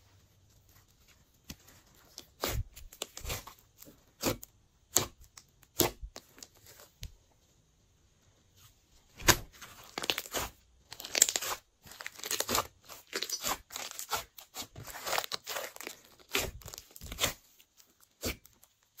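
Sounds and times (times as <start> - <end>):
slime squished by hand: 1.5 - 7.0, 9.2 - 19.0.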